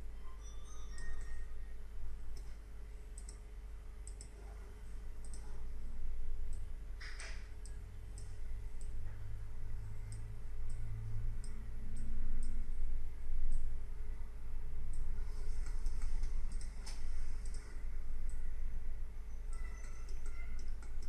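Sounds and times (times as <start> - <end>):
steady low hum: 0.0 - 21.0
computer mouse clicking: 2.3 - 4.6, 5.2 - 5.6, 10.0 - 12.8, 14.9 - 18.5, 19.5 - 21.0.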